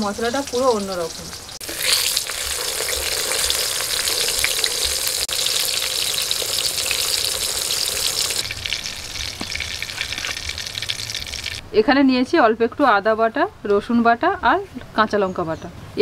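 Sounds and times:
fish deep-frying in hot oil: 0:00.0 - 0:11.6.

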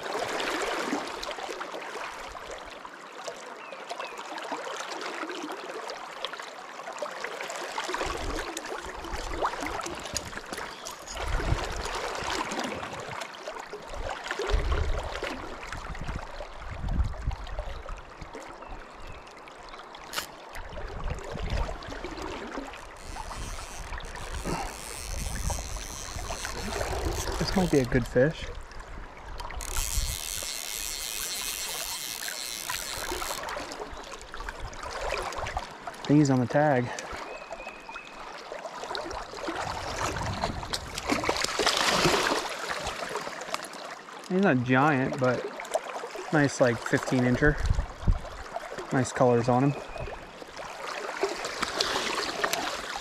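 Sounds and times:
river current rushing: 0:21.2 - 0:37.3, 0:50.2 - 0:53.0.

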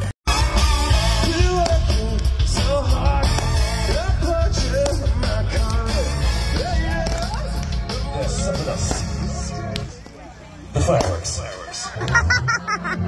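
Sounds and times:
rock band with lead singer: 0:00.0 - 0:09.9.

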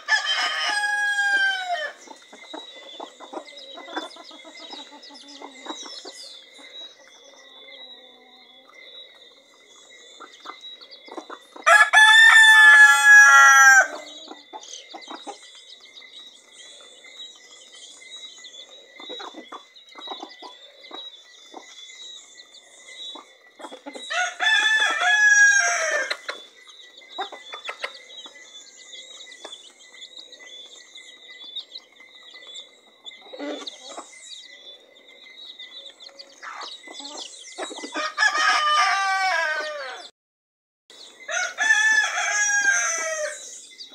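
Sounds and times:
rooster crowing: 0:00.0 - 0:02.0, 0:11.6 - 0:14.2, 0:24.1 - 0:26.2, 0:38.0 - 0:40.1, 0:41.3 - 0:43.5
hens clucking: 0:00.0 - 0:15.5, 0:18.6 - 0:21.8, 0:23.1 - 0:26.5, 0:27.1 - 0:28.4, 0:31.7 - 0:34.2, 0:35.9 - 0:38.8
hens pecking on paving stones: 0:00.0 - 0:38.8.

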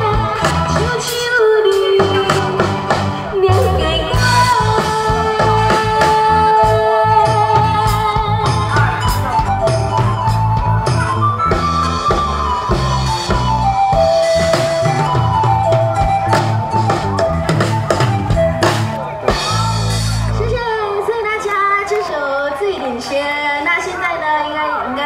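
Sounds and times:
woman singing into a microphone: 0:00.0 - 0:08.7
amplified band with drums: 0:00.0 - 0:25.0.

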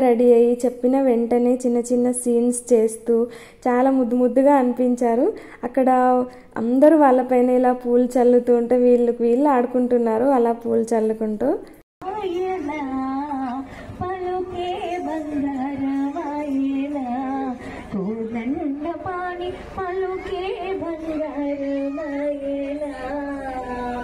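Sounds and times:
woman singing slow melody: 0:12.0 - 0:24.0.

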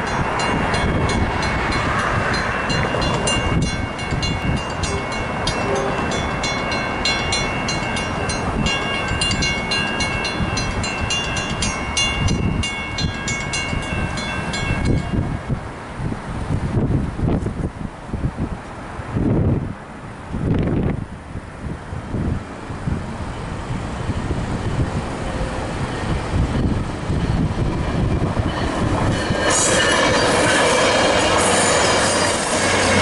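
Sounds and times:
railroad crossing bells ringing: 0:00.0 - 0:15.8, 0:25.2 - 0:33.0.

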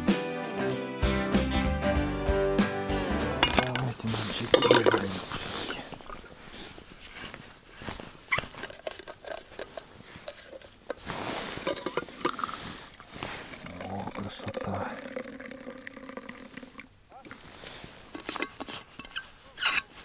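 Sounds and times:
hands handling metal flask: 0:03.4 - 0:14.6, 0:17.2 - 0:20.0
rustling clothing and plastic bag: 0:03.8 - 0:14.0.

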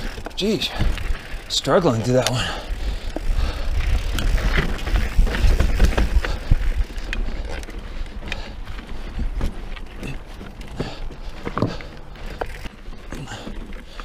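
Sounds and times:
bike rattling over stones: 0:00.0 - 0:14.0
bike tyres on dirt and rock: 0:00.0 - 0:14.0
wind rumble on microphone: 0:02.8 - 0:09.9.

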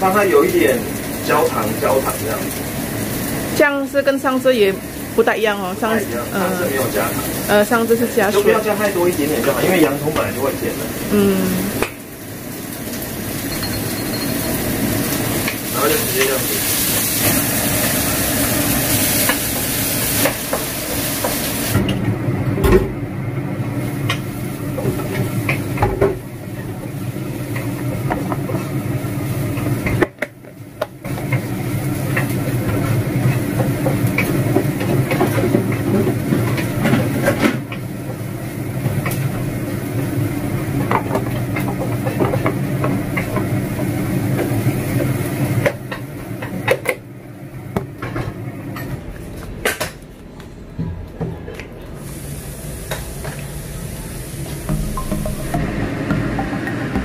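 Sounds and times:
onions sizzling in a wok: 0:00.0 - 0:48.6, 0:52.0 - 0:55.0.

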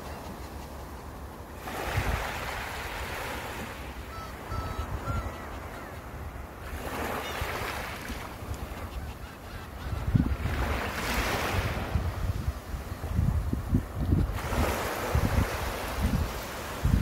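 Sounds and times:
sea waves breaking on shore: 0:00.0 - 0:08.9, 0:10.2 - 0:17.0
seagull calls: 0:04.0 - 0:06.3, 0:08.6 - 0:10.5
wind buffeting microphone: 0:09.8 - 0:17.0.

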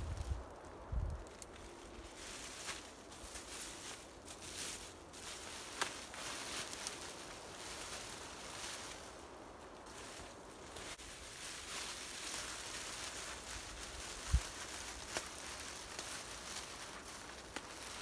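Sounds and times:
plastic sheeting rustling: 0:09.9 - 0:18.0.

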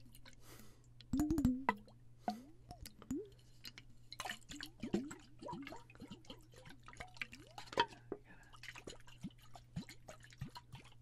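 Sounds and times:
bubbly plops: 0:01.1 - 0:03.4, 0:04.2 - 0:08.0
water sloshing in a bottle: 0:01.2 - 0:11.0.

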